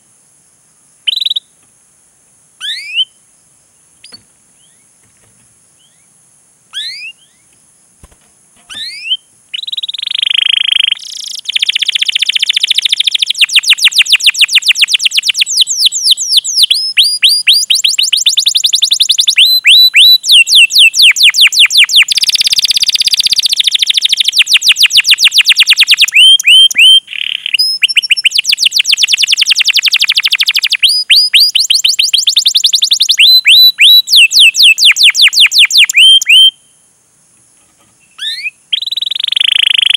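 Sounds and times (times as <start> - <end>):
canary singing: 2.6 - 3.2, 5.8 - 6.1, 6.7 - 7.6, 8.6 - 36.7, 38.0 - 39.9.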